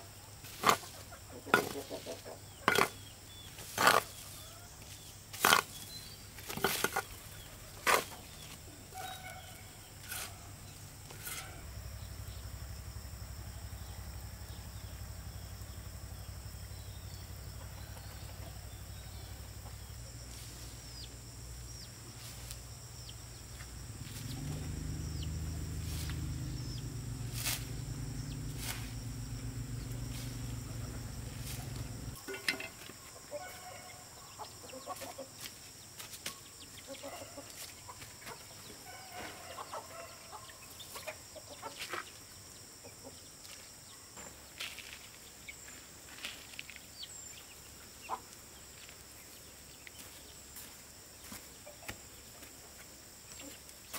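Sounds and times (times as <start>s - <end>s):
high insect buzz: 0.0s - 53.9s
soil being scooped by hands: 0.4s - 11.6s, 27.2s - 29.1s
chickens clucking: 0.5s - 5.8s, 17.5s - 21.2s, 27.4s - 35.5s, 36.7s - 42.2s, 48.0s - 48.4s
low steady hum: 4.1s - 34.6s.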